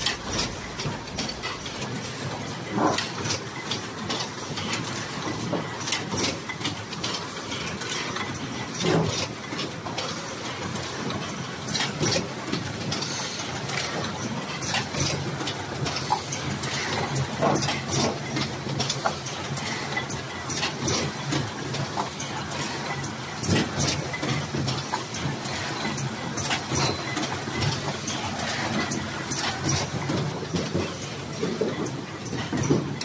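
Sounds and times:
machine clattering and clicking: 0:00.0 - 0:33.0.

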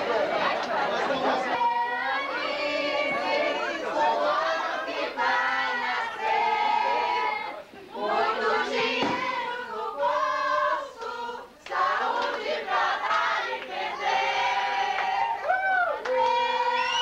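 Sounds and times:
crowd singing and shouting: 0:00.0 - 0:17.0
person whooping: 0:15.4 - 0:16.0.

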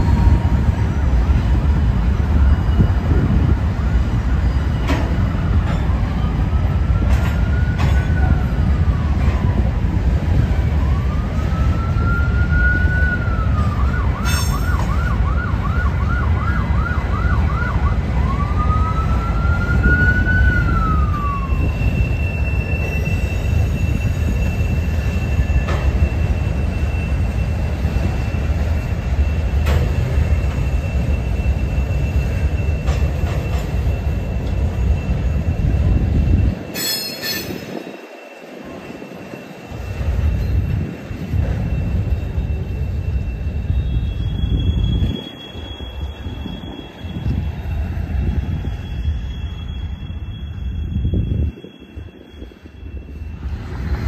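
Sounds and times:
thin steady wheel squeal: 0:00.0 - 0:15.0, 0:18.4 - 0:54.0
emergency vehicle siren: 0:00.0 - 0:36.6
freight train rumbling: 0:00.0 - 0:54.0.

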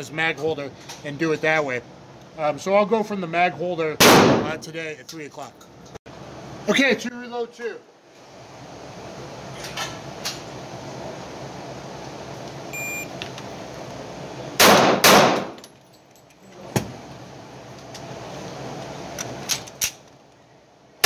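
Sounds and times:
pistol shots echoing indoors: 0:04.0 - 0:04.6, 0:14.6 - 0:15.6.

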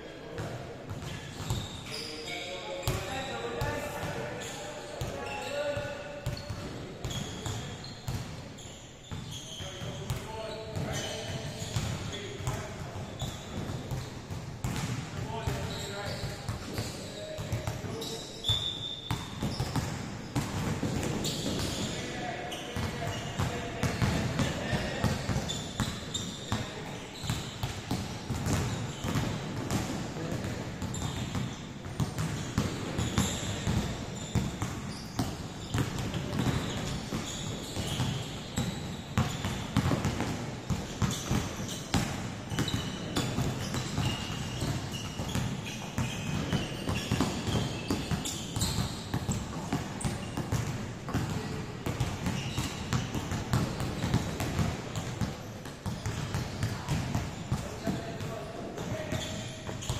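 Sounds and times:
voices in background: 0:00.1 - 0:14.0, 0:20.9 - 0:28.0
basketballs dribbling on wooden court: 0:00.4 - 0:01.8, 0:05.0 - 0:08.4, 0:09.1 - 0:59.9.

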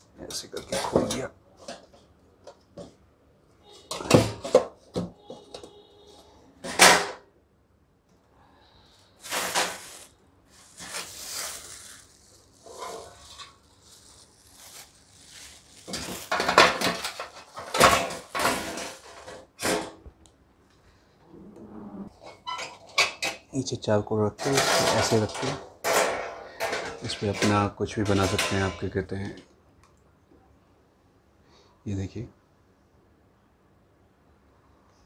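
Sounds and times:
metal scraping: 0:11.7 - 0:13.7
metal knocks and clatter: 0:24.4 - 0:29.0.

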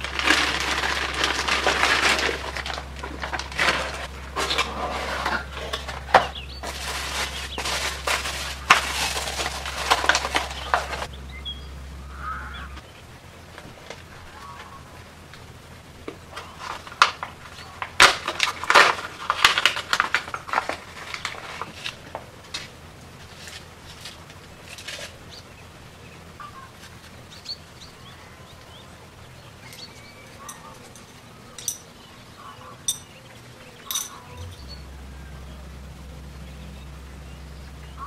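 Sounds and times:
plastic bag crinkling: 0:00.0 - 0:11.1, 0:16.2 - 0:25.2.

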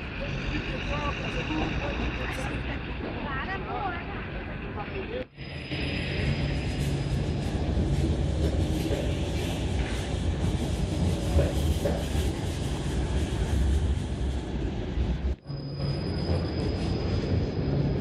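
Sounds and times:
tram wheels rumbling on rails: 0:00.0 - 0:18.0.

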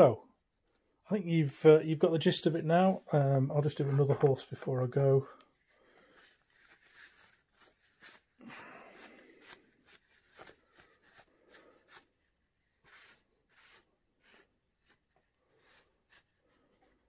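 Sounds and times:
paper tissue rustling: 0:05.5 - 0:17.0.

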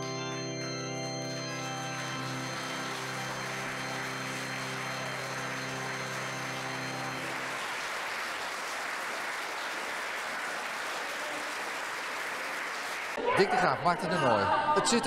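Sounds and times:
held musical chord: 0:00.0 - 0:09.4
audience applauding: 0:00.0 - 0:13.9.

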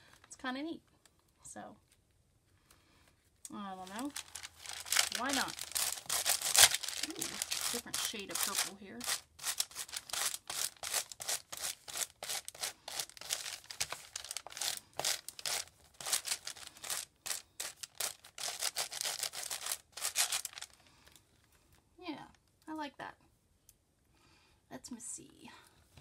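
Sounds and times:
pastel scribbling on paper: 0:05.0 - 0:20.5.

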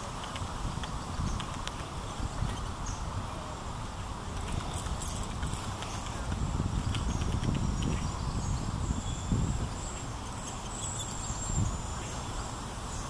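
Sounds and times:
high-pitched bird calls: 0:06.8 - 0:12.3.

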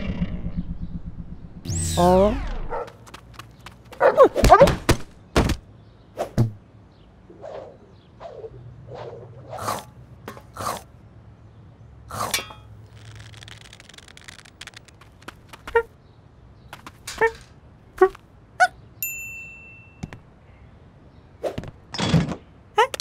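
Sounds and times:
clink with ring: 0:19.0 - 0:20.0.

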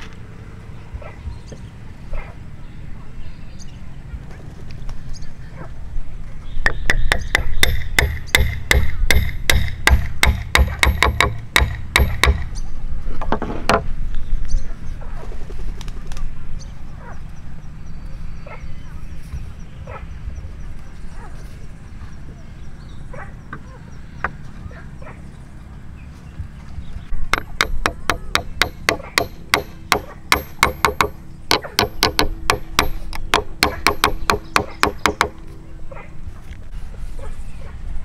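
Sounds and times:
hammer blows on wood: 0:06.6 - 0:12.5, 0:27.3 - 0:35.4.

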